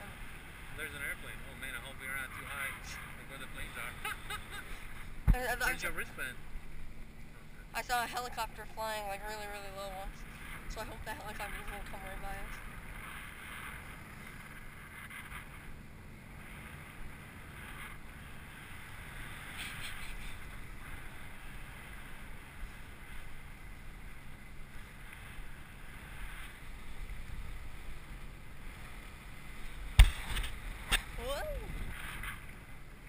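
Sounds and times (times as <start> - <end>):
wind buffeting microphone: 29.9 - 32.3.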